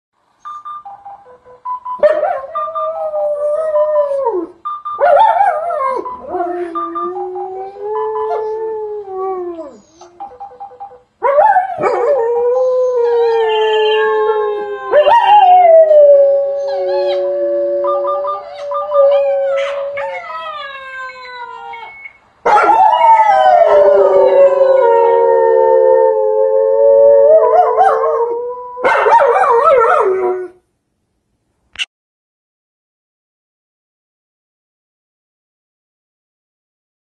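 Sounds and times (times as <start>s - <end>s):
dogs howling: 11.2s - 30.6s.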